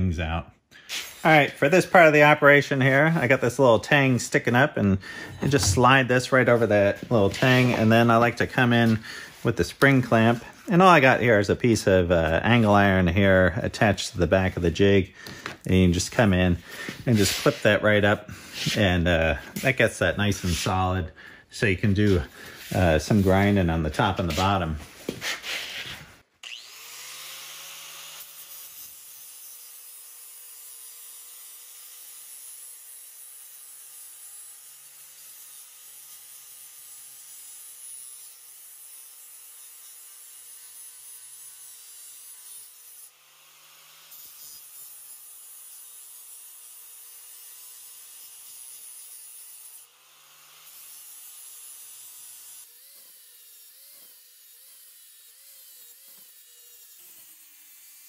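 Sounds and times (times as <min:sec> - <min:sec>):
angle grinder grinding steel: 0:00.8 - 0:21.0, 0:21.6 - 0:58.0.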